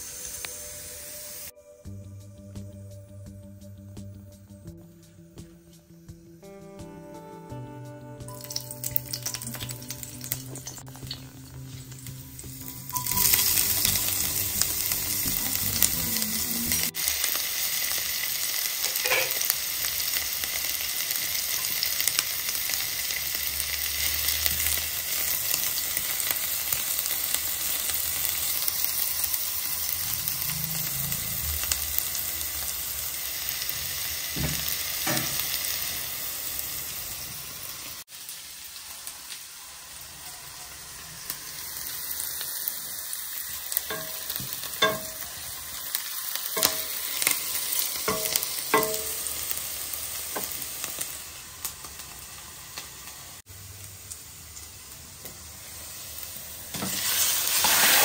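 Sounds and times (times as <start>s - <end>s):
onions sizzling in oil: 0.0s - 1.6s, 8.2s - 58.0s
stirring knocks: 43.9s - 45.2s, 48.1s - 49.2s.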